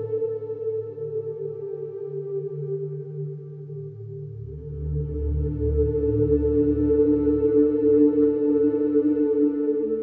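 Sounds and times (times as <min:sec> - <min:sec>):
low drone: 0:00.0 - 0:10.0.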